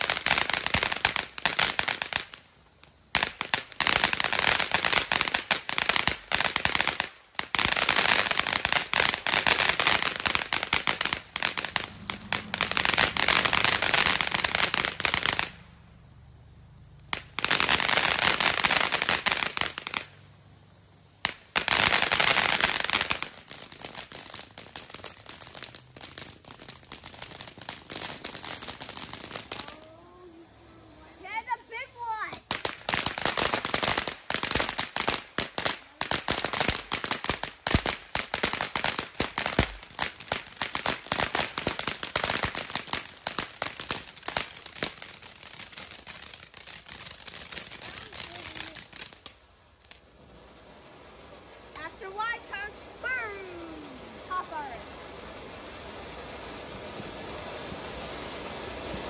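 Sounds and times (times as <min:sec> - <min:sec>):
fireworks crackling and popping: 0:00.0 - 0:59.0.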